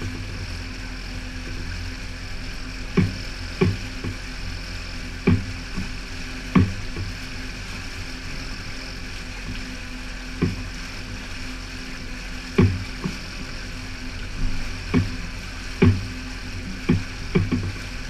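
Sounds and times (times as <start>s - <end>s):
outboard motor running: 0.0s - 18.0s
sharp knocks: 3.0s - 4.2s, 5.2s - 5.9s, 6.5s - 7.0s, 12.6s - 13.1s, 15.8s - 16.0s, 16.9s - 17.8s.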